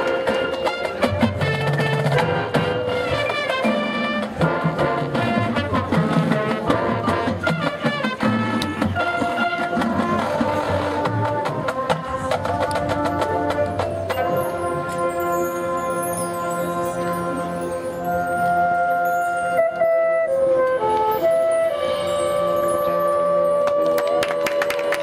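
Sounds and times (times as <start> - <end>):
drum and percussion strokes: 0.0 - 18.1
brass chords: 0.0 - 23.8.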